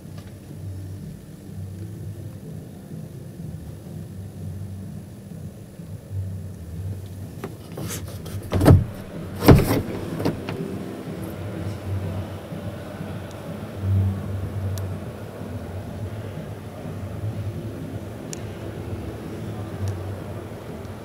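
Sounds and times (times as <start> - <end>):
exhibition hall hum: 0.0 - 21.0
knocks: 7.4 - 10.7
loud thumps: 7.4 - 10.7.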